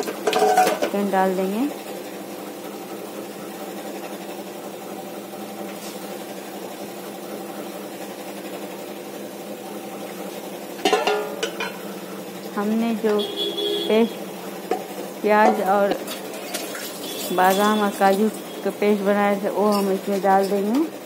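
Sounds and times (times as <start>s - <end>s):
metal lid clattering on pot: 0.0s - 1.0s, 10.8s - 11.8s, 14.7s - 17.3s
steady machine hum: 0.0s - 21.0s.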